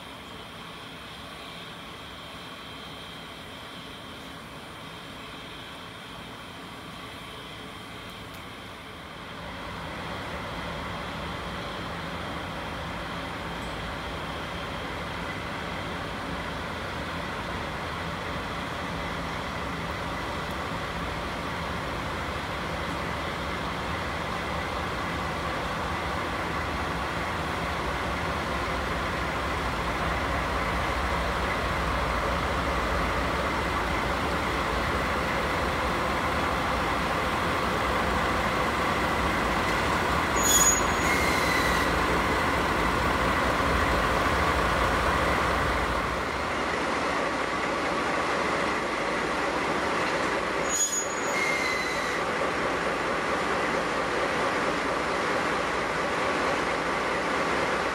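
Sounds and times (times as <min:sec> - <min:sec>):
diesel locomotive engines running: 0:00.0 - 0:57.9.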